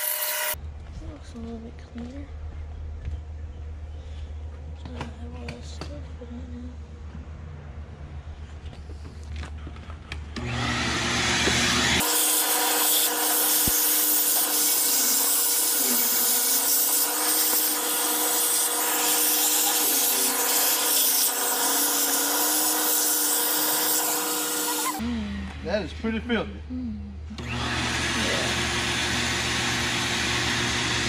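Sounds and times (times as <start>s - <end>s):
shop vacuum running: 10.4s - 26.4s, 27.3s - 31.0s.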